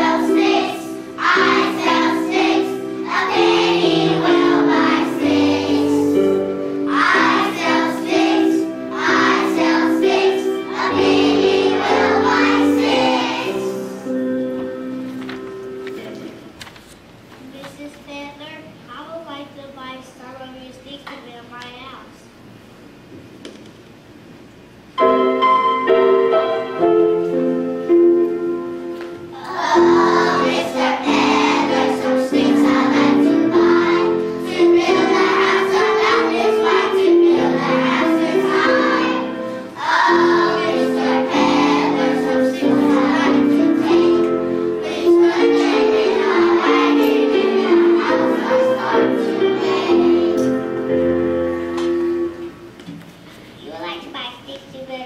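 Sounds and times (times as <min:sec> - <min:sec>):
young children singing: 0:00.0 - 0:14.2, 0:29.3 - 0:50.9
instrumental accompaniment: 0:00.0 - 0:16.6, 0:24.9 - 0:53.3.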